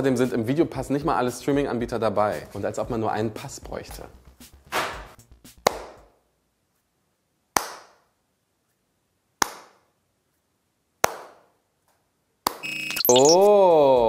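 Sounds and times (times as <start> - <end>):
slow hand claps echoing: 5.6 - 6.1, 7.5 - 8.0.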